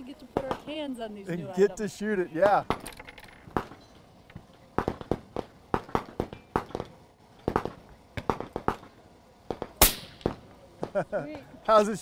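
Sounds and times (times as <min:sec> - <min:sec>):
rifle gunshots: 0:09.5 - 0:10.4.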